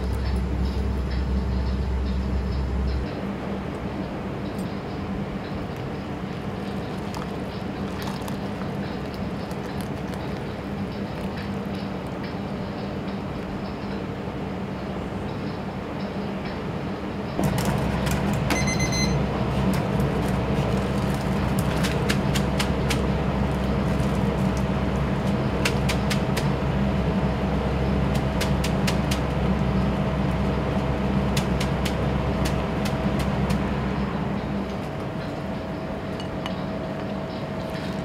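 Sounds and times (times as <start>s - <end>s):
noodle boiler and extractor roar: 0.0s - 38.0s
short high beep: 18.5s - 19.2s.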